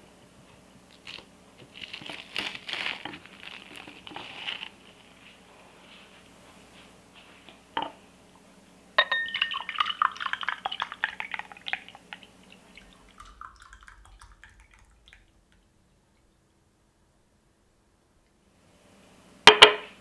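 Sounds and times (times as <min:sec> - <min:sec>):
glass clink: 0:09.0 - 0:10.1
liquid splashing into glass: 0:09.0 - 0:15.6.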